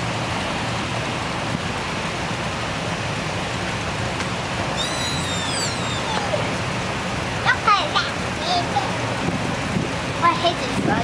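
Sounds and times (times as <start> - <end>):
high-pitched squeal falling in pitch: 4.7 - 6.5.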